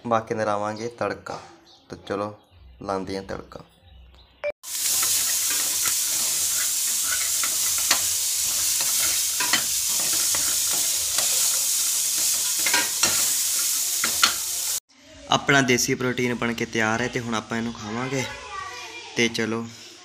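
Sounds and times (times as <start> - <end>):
chickpeas sizzling in oil: 4.6 - 14.9
spoon scraping a pan: 4.7 - 14.8.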